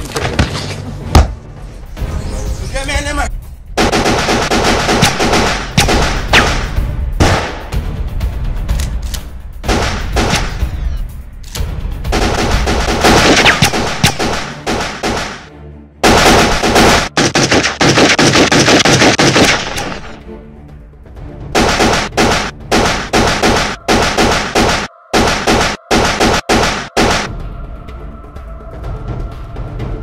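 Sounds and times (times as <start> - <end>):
rapid gunfire: 3.8 - 7.6, 9.6 - 10.6, 12.1 - 20.2, 21.6 - 27.3.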